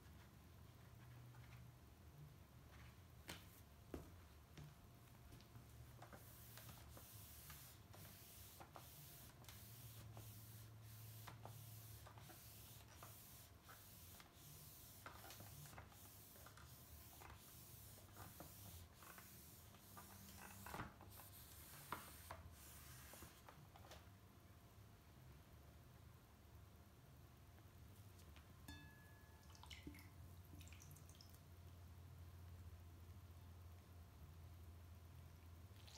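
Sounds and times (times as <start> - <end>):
cloth rubbing on screen: 6.1 - 23.5.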